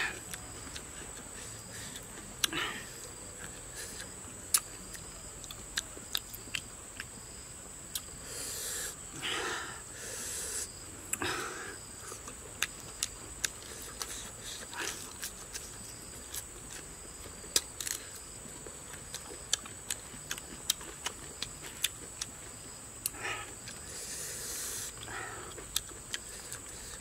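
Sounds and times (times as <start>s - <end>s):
crunching vegetables while chewing: 0.0s - 8.2s, 10.6s - 27.0s
breathy puffs of breath: 8.2s - 12.2s, 23.1s - 25.6s.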